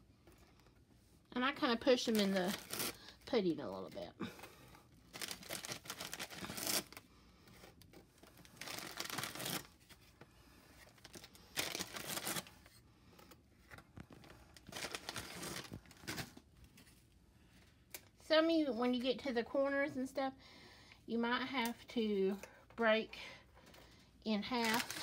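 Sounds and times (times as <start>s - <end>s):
plastic sleeve crinkling: 1.6s - 4.0s, 5.0s - 10.0s, 10.8s - 12.7s, 13.6s - 16.5s, 24.4s - 25.0s.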